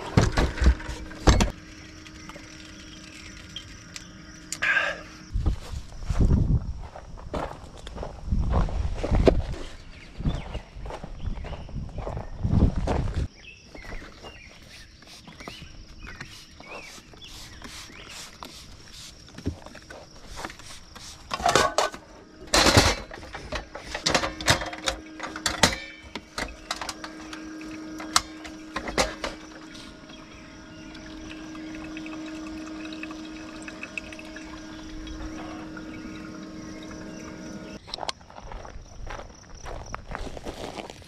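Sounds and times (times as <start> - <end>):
spray bottle hissing: 16.2 - 19.3
steady hum: 21.0 - 37.8
camp gear clicks and knocks: 21.3 - 29.5.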